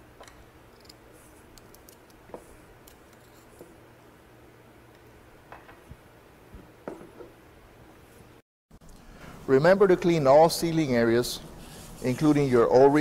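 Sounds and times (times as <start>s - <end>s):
parts set down on bench: 6.6s - 7.4s.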